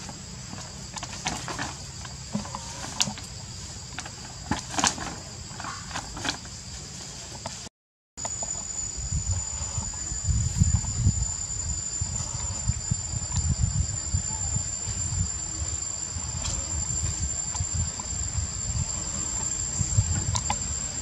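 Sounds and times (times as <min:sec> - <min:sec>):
insects buzzing: 0:00.0 - 0:21.0
low uneven rumble: 0:08.3 - 0:21.0.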